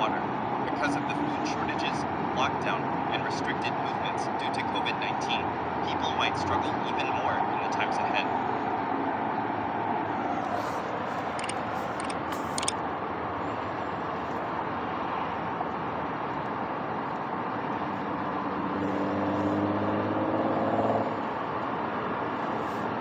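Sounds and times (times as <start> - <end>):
road traffic rush: 0.0 - 23.0
motor vehicle passing: 17.4 - 23.0.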